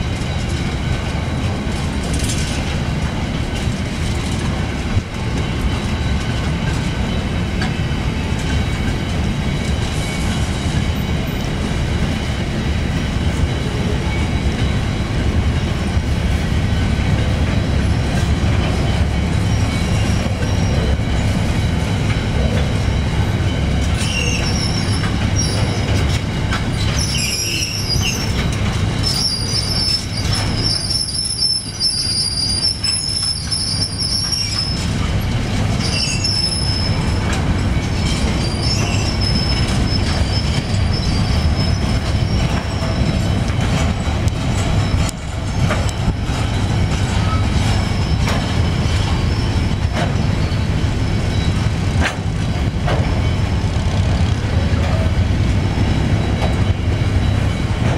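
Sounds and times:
train wheels rumbling on rail: 0.0 - 57.9
wheel squeal: 22.4 - 35.0, 35.7 - 51.8.

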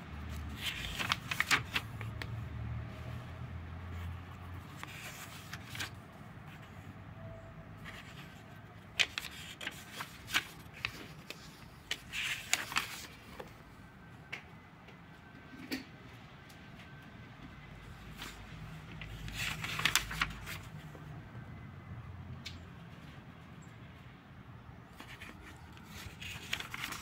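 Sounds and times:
paper pages rustling: 0.3 - 2.4, 4.0 - 6.8, 7.8 - 13.6, 18.1 - 20.9, 24.9 - 27.0.

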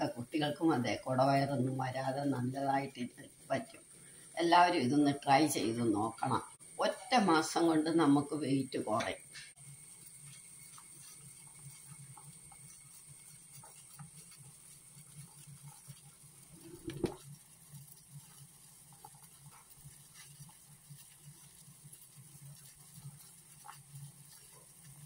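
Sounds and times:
faint bubbling and popping: 0.0 - 25.0
water boiling in a saucepan: 0.0 - 25.0
knock: 16.7 - 17.2.

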